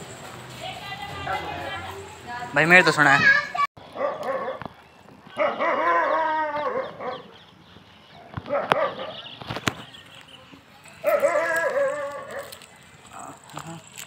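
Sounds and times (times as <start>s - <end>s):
dog barking: 3.9s - 4.6s, 5.4s - 7.3s, 8.4s - 9.3s, 11.0s - 12.6s.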